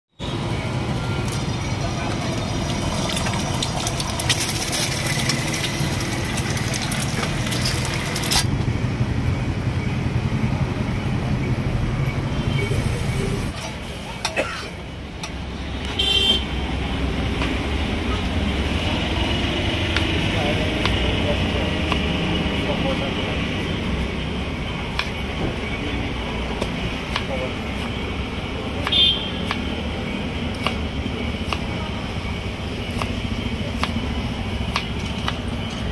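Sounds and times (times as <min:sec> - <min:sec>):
road traffic: 0:00.1 - 0:35.9
vehicle horn honking: 0:15.9 - 0:16.6, 0:28.8 - 0:29.4.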